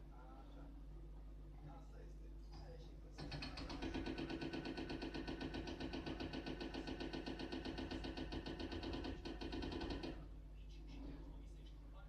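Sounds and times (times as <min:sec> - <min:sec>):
hydraulic breaker hammering brick: 0:03.2 - 0:10.2
machine engine running: 0:03.2 - 0:10.2.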